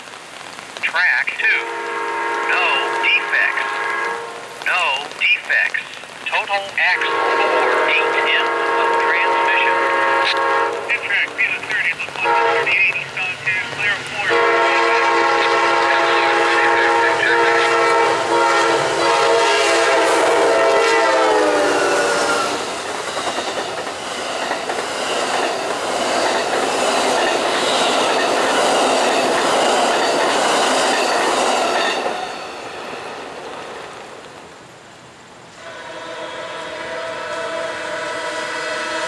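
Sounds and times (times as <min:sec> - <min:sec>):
train horn: 0:01.5 - 0:04.5, 0:06.9 - 0:11.0, 0:12.1 - 0:12.9, 0:14.2 - 0:22.7, 0:35.6 - 0:39.0
train cars clickety-clack: 0:22.2 - 0:32.5.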